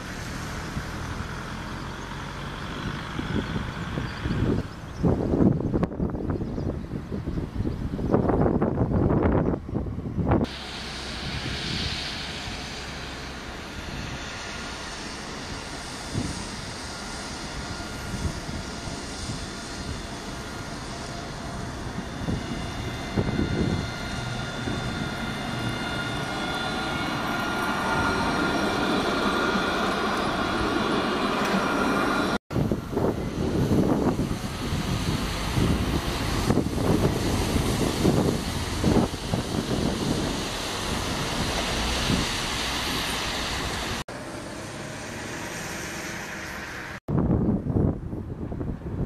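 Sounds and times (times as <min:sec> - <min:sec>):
steel wheels rumbling on rails: 0:00.0 - 0:49.0
tram electric drive whine: 0:00.0 - 0:49.0
wind buffeting microphone: 0:00.2 - 0:44.0, 0:46.4 - 0:49.0
steady hiss: 0:10.5 - 0:32.4.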